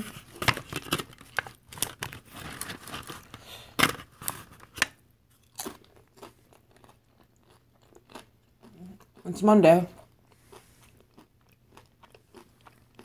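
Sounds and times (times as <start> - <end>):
foil tray crinkling: 0.0 - 4.9.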